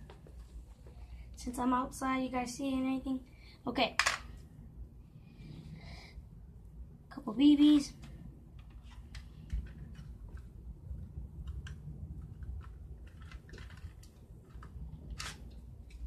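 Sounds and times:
plastic toy pistol clicks and rattles: 11.4s - 16.0s.

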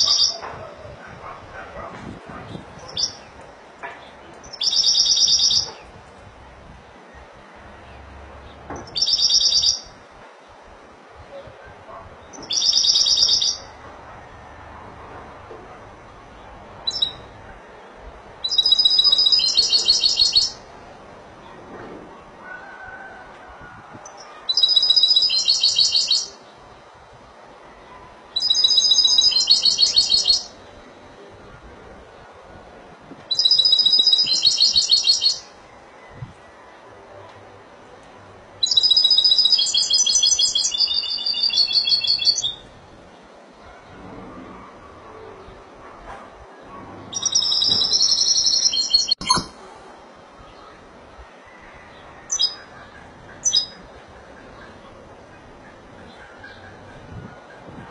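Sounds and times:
goldfinch singing: 4.4s - 5.9s, 8.8s - 9.9s, 12.3s - 13.7s, 18.5s - 20.7s, 28.4s - 30.6s, 38.6s - 42.6s, 47.1s - 49.5s
goldfinch trilled song: 47.2s - 49.5s.

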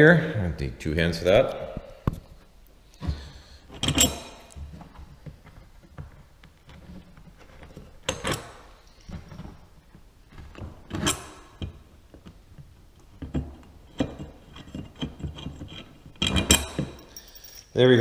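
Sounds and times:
metal clicks scrapes and knocks: 3.7s - 4.7s, 7.0s - 9.4s, 10.4s - 17.1s.

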